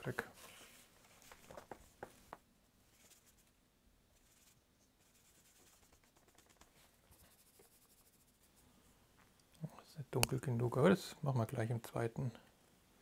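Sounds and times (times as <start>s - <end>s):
paintbrush scratchy swishes: 4.2s - 8.7s.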